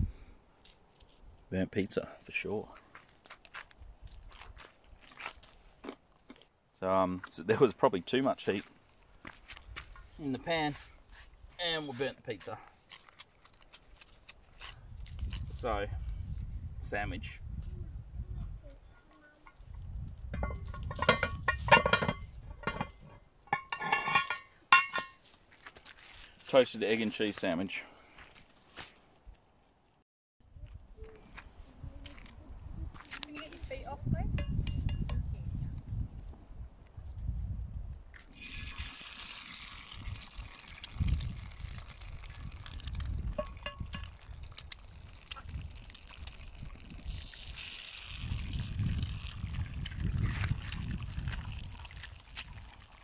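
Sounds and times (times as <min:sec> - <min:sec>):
cast iron lid clinking on pan: 0:20.4 - 0:25.2, 0:43.4 - 0:44.1
eggs sizzling in a frying pan: 0:38.3 - 0:53.0.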